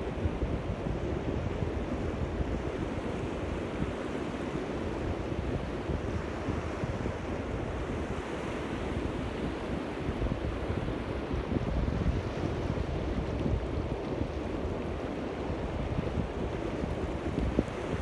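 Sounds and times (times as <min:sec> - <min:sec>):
sea waves breaking on beach: 0:00.0 - 0:18.0
wind buffeting microphone: 0:00.0 - 0:18.0.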